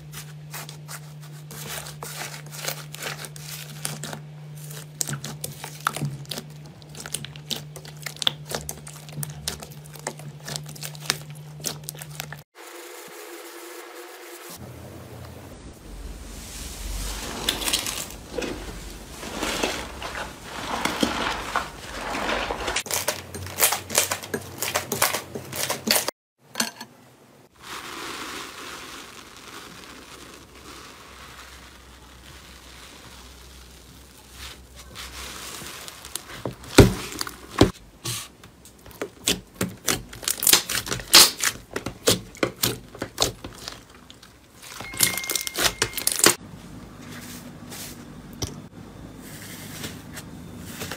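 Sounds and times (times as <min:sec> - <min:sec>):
slime crackling and squishing: 0:00.1 - 0:12.5, 0:27.5 - 0:37.8, 0:38.8 - 0:46.3.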